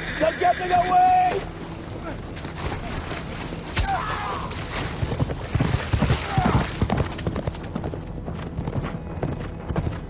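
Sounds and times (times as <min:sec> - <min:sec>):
horses galloping through water: 0:00.6 - 0:08.8.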